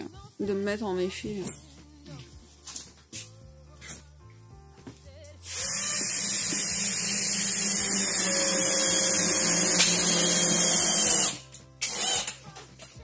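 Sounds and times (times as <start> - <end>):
cordless drill running: 5.4 - 12.4.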